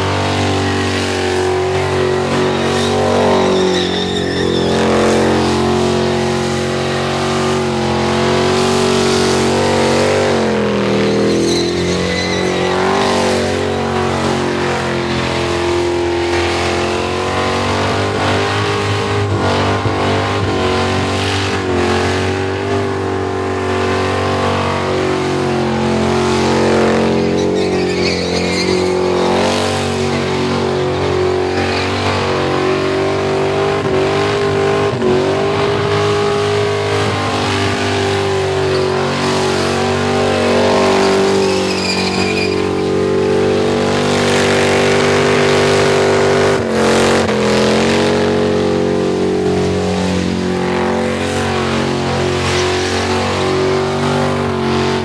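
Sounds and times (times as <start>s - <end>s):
car engine revving high: 0.0s - 55.0s
tyre squeal: 0.2s - 6.9s, 8.2s - 21.8s, 26.2s - 46.3s.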